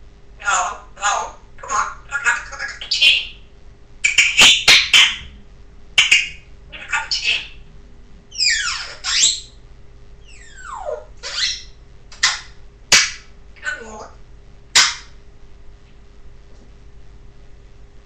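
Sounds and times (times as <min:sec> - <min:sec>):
parrot screeching: 0:04.0 - 0:05.3, 0:06.0 - 0:07.6, 0:08.3 - 0:09.6, 0:10.2 - 0:12.5
sharp short cracks: 0:12.1 - 0:13.3, 0:14.7 - 0:15.2.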